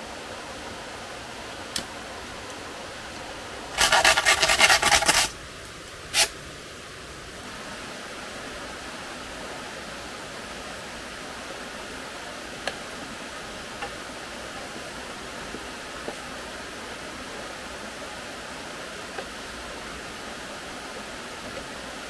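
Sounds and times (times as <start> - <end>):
rasping scrapes: 3.8 - 5.3.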